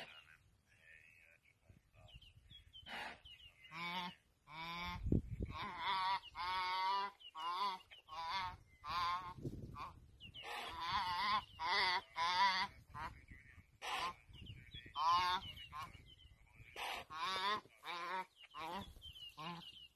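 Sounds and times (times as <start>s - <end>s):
fawn bleating: 3.7s - 13.2s.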